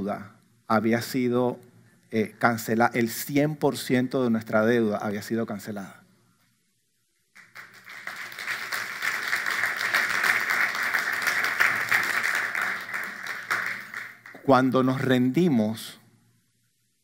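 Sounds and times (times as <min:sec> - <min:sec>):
crowd clapping: 0:07.4 - 0:15.1.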